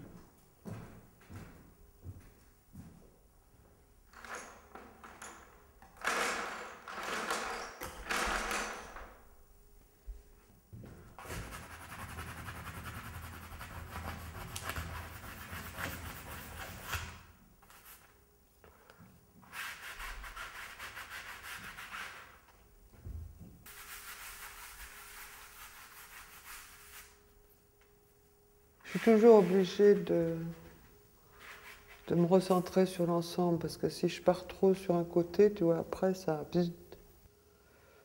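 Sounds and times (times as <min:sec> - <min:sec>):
hand scrubbing on canvas: 0:23.7 - 0:27.2, 0:28.9 - 0:30.5, 0:31.4 - 0:32.6.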